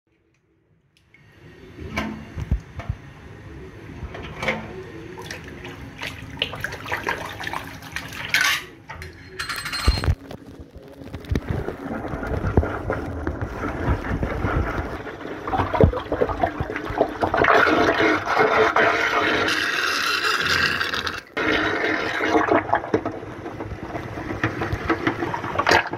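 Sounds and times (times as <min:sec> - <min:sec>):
water gurgling down drain: 0:11.1 - 0:25.9.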